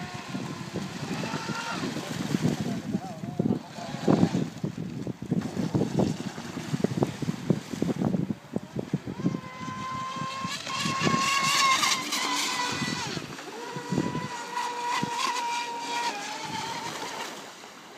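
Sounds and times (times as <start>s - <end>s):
electric motor whining: 0.0s - 2.2s, 8.7s - 17.4s
wind buffeting microphone: 0.0s - 17.2s.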